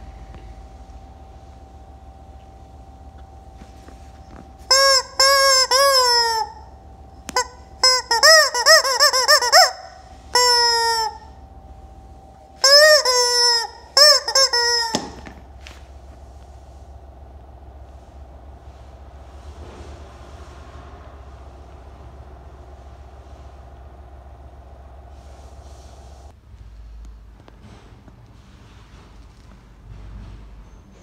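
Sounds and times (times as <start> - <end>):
rubber chicken toy squawking: 4.7 - 6.6, 7.4 - 11.2, 12.6 - 15.2.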